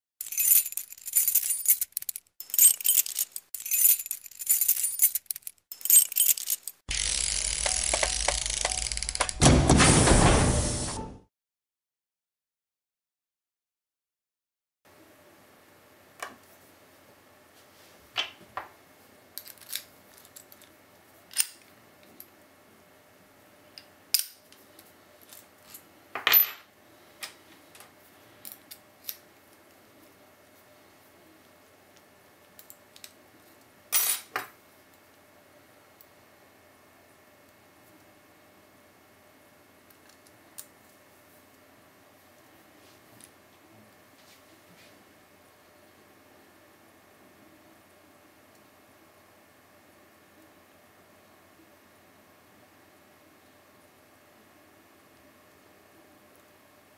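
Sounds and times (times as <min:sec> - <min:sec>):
high metallic jingling: 0:00.2 - 0:09.0
metal padlock clicks and clinks: 0:00.2 - 0:09.4.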